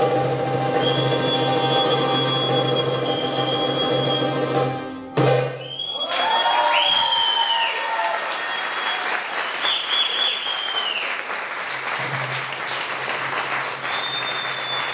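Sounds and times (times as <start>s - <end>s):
audience applauding: 5.7s - 14.9s.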